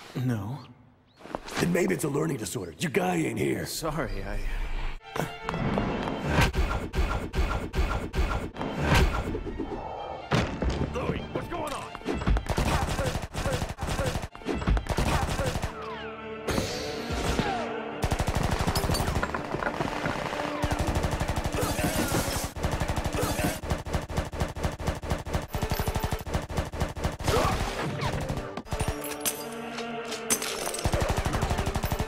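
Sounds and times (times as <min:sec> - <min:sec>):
background music: 0:01.7 - 0:32.0
automatic gunfire: 0:18.0 - 0:28.8, 0:30.8 - 0:32.0.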